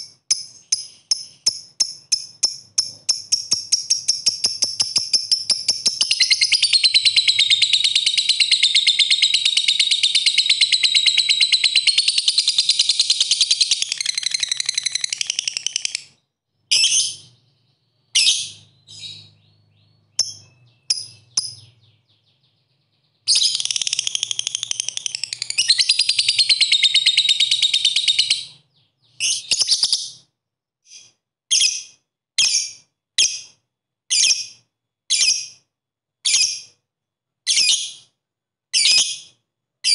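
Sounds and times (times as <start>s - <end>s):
bird chirps and calls: 0.0s - 30.3s, 37.5s - 38.1s
lovebird chattering song: 0.3s - 30.2s.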